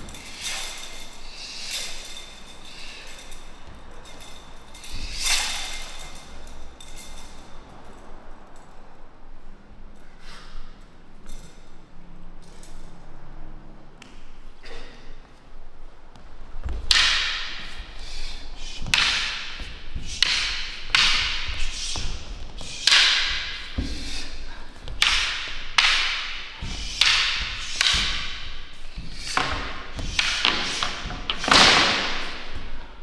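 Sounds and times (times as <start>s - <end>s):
martial arts strikes slapping: 16.6s - 32.7s.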